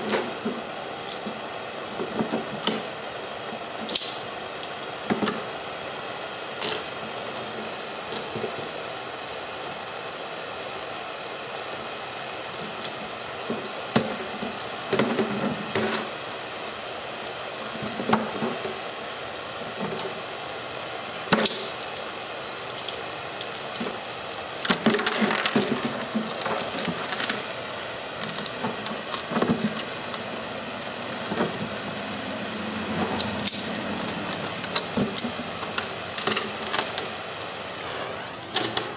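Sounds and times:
propane torch hissing: 0.0s - 38.9s.

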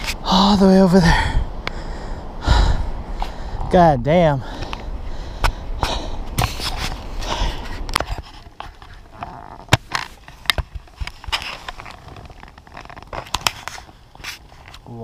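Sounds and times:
footsteps on a trail: 4.4s - 15.0s.

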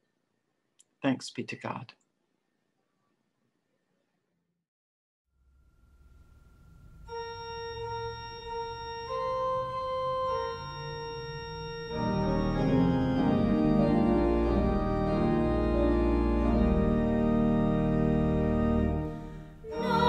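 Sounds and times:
organ playing: 6.9s - 20.0s.

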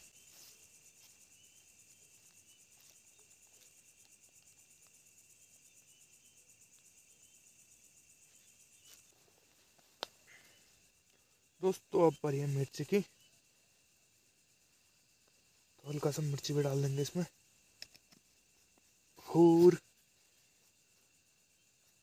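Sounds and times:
crickets chirring: 0.0s - 22.0s
faint ticks: 8.8s - 11.3s, 17.6s - 18.9s.

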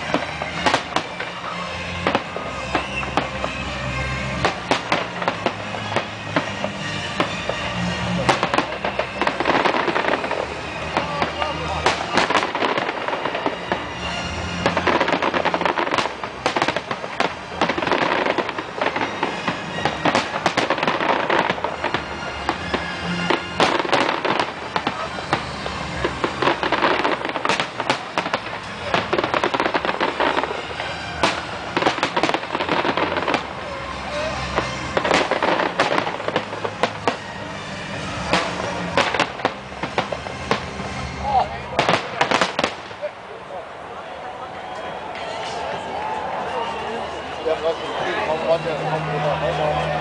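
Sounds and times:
fireworks bangs: 0.0s - 43.1s
fireworks crackling: 0.0s - 44.1s.

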